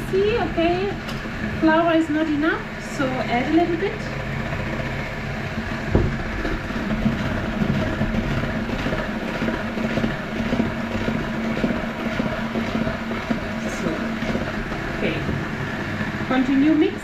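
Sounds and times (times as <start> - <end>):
electric hand mixer running: 0.0 - 17.0
sharp knock: 5.9 - 6.3.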